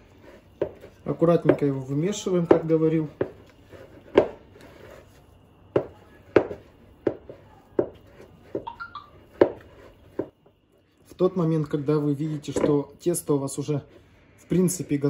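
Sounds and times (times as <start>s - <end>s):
dough slapping and squelching: 0.0s - 10.4s.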